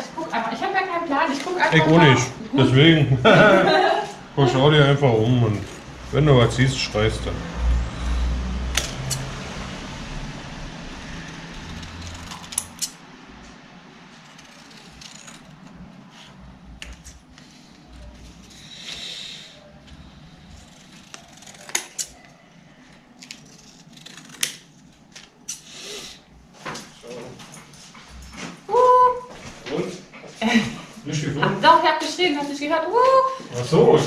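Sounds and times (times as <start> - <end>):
scissors cutting cardboard: 11.3 - 13.0, 14.1 - 17.4, 20.6 - 22.2, 23.2 - 24.9.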